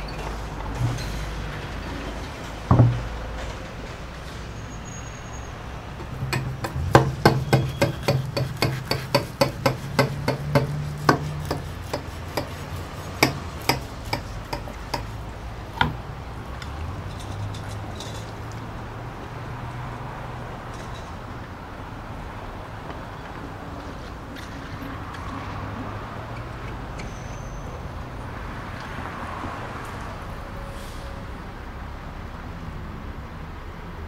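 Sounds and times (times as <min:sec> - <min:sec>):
glass dish knocking on wood: 0:02.7 - 0:03.1, 0:06.1 - 0:11.6.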